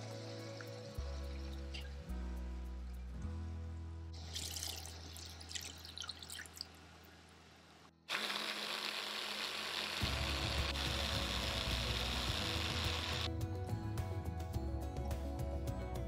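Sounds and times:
soft background music: 0.0 - 5.8, 10.0 - 16.0
cream pouring and dripping: 4.2 - 6.8
electric food chopper running: 8.1 - 13.3.

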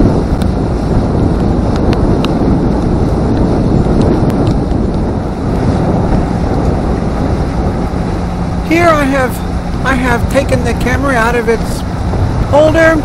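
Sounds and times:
wind blowing across microphone: 0.0 - 13.0
light ticks: 1.7 - 5.0.

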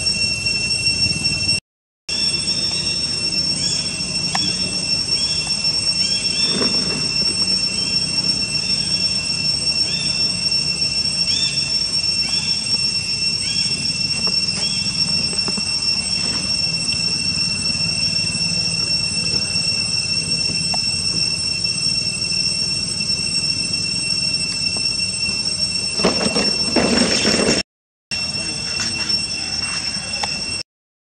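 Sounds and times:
insect chorus drone: 0.0 - 30.6.

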